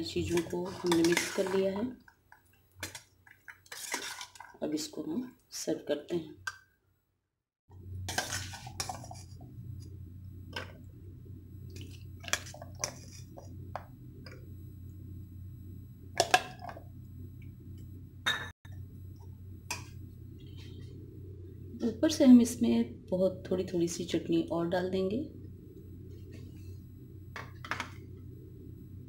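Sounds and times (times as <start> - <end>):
steady low hum: 7.7 - 29.0.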